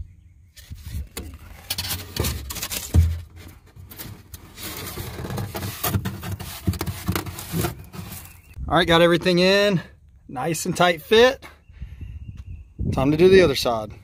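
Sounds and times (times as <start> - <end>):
foam board scraping and rubbing: 0.6 - 8.6
dull thump: 2.8 - 3.4.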